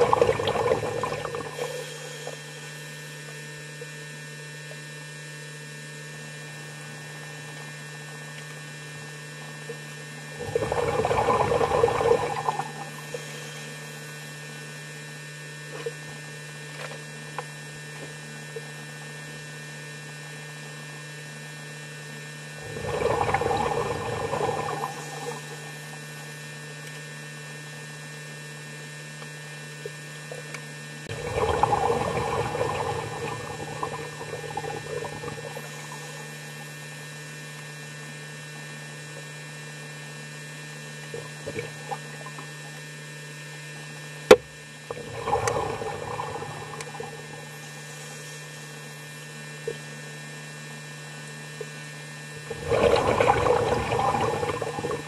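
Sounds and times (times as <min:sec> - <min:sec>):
rushes of water: 0:00.0 - 0:02.4, 0:10.4 - 0:13.3, 0:22.6 - 0:26.0, 0:31.1 - 0:36.4, 0:44.9 - 0:47.5, 0:52.4 - 0:55.0
low underwater hum: 0:00.0 - 0:55.0.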